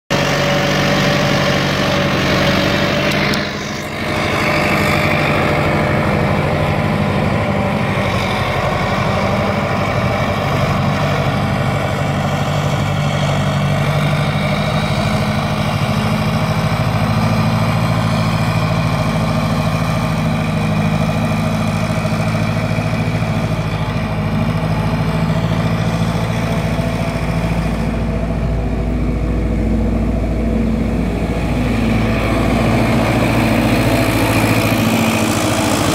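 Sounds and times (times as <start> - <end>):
diesel engine running: 0.1 - 35.9.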